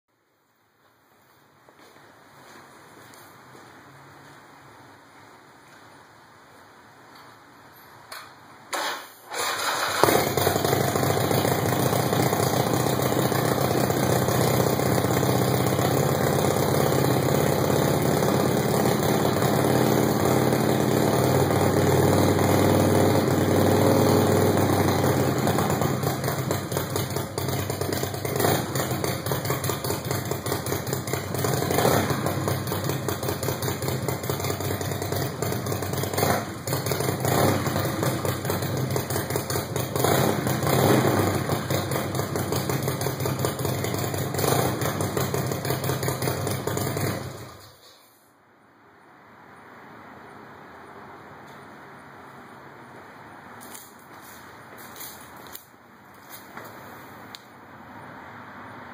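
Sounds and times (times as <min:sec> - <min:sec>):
motorcycle engine revving: 0:08.7 - 0:47.6
motorcycle engine starting: 0:08.7 - 0:47.9
motorcycle engine idling: 0:09.4 - 0:47.6.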